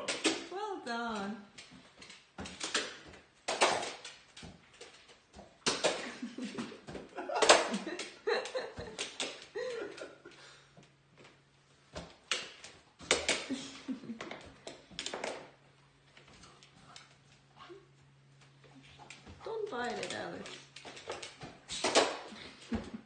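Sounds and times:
people laughing: 6.0s - 10.4s.

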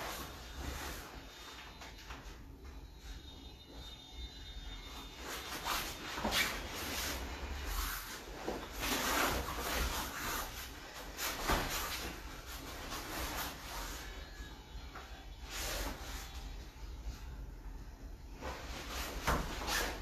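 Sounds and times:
fabric rustling: 4.9s - 14.4s, 18.3s - 20.0s.

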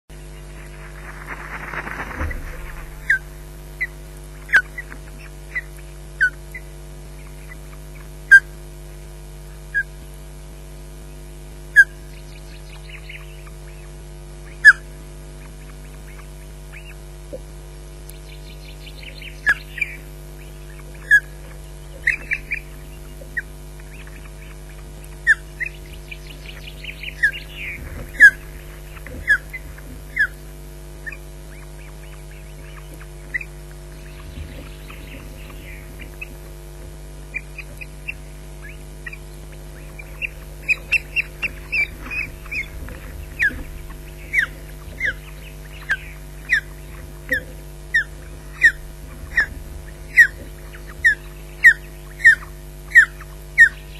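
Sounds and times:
low electrical hum: 0.0s - 53.9s
ospreys calling: 0.1s - 8.6s, 18.3s - 53.9s.

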